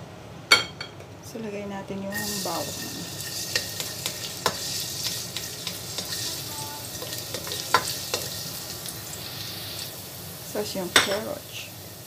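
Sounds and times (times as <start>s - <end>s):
garlic sizzling in oil: 2.1s - 12.0s
spatula knocking and scraping wok: 2.7s - 8.7s.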